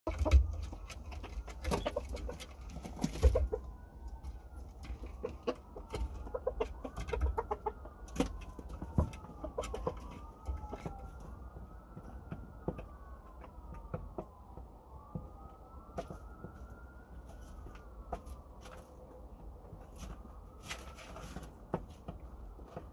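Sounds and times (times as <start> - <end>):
chickens clucking softly: 0.1 - 3.7, 5.0 - 8.0
siren wailing: 0.1 - 22.9.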